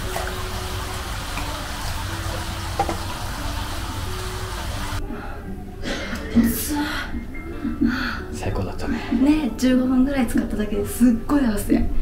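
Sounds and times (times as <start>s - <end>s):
water running into a bath: 0.0s - 5.0s
soft slow background music: 0.0s - 12.0s.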